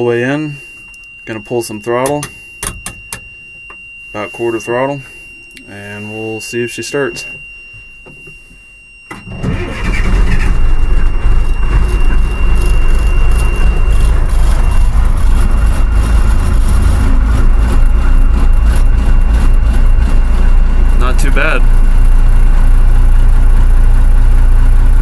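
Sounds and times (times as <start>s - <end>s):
diesel truck engine starting and running: 9.1s - 25.0s.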